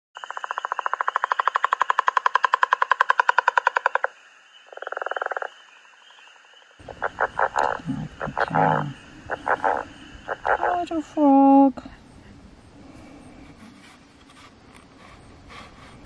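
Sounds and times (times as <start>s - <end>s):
frog snoring rattle call: 6.8s - 11.0s.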